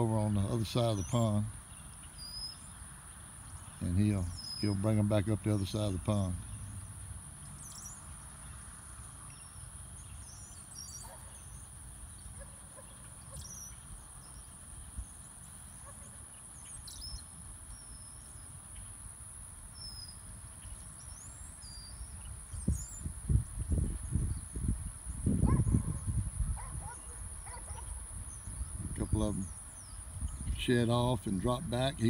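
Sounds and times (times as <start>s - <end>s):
bird chirps: 0.2s - 19.0s, 19.7s - 23.2s.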